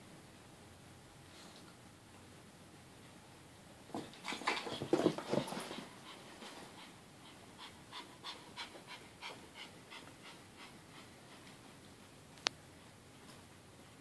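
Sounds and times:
puppy panting: 5.3s - 11.8s.

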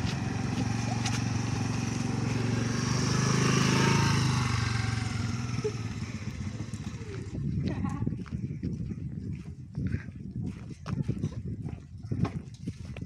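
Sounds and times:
motor scooter passing: 0.0s - 7.6s.

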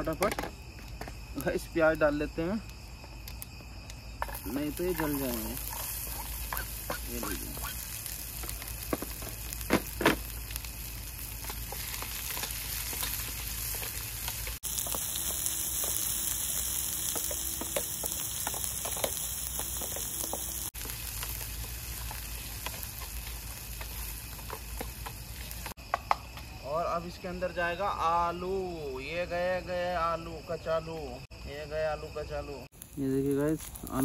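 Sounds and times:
onion sizzling in hot oil: 0.0s - 26.1s, 32.7s - 34.0s.

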